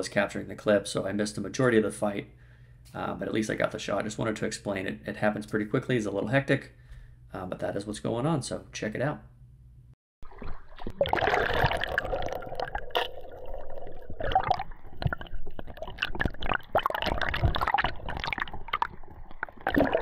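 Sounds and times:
sea water sloshing and splashing: 0:10.2 - 0:20.0
underwater gurgling: 0:10.2 - 0:20.0.

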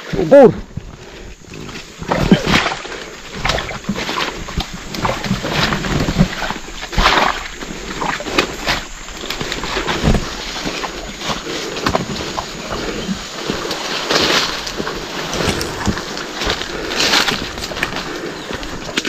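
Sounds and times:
squelching footsteps in muddy water: 0:00.0 - 0:19.0
men breathing hard: 0:00.8 - 0:02.1, 0:14.8 - 0:18.9.

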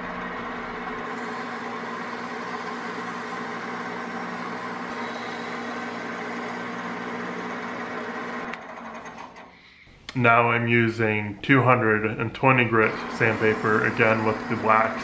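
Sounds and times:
lathe humming: 0:00.0 - 0:09.6, 0:12.8 - 0:15.0.

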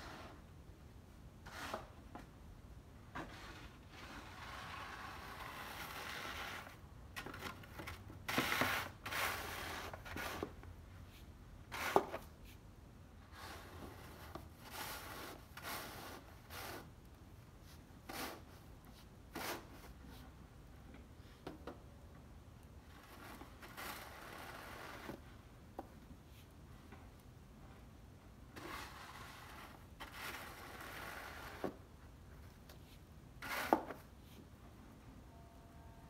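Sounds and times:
snow shovel scraping pavement: 0:28.6 - 0:31.6.

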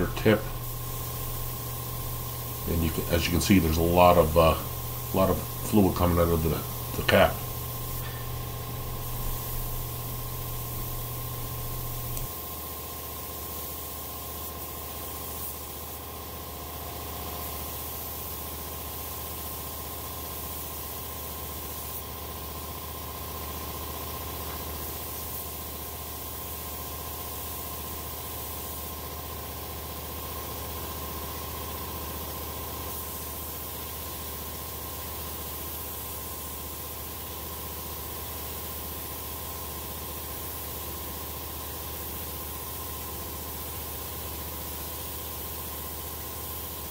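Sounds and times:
low motor hum: 0:00.0 - 0:12.3
air hissing from spray gun: 0:00.0 - 0:22.5, 0:24.4 - 0:29.2, 0:32.7 - 0:46.9.

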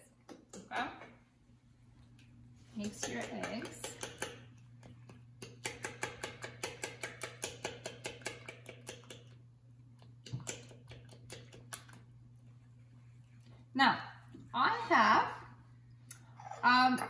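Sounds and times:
fork beating eggs clicking on platter: 0:02.1 - 0:12.2.

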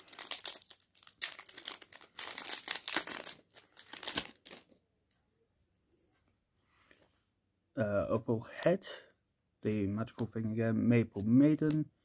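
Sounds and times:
foil wrapper tearing and crinkling: 0:00.0 - 0:04.7.

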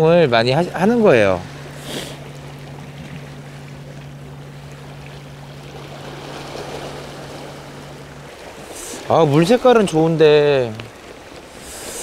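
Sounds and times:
steady low hum: 0:00.0 - 0:12.0
waves lapping against rocks: 0:00.0 - 0:12.0.

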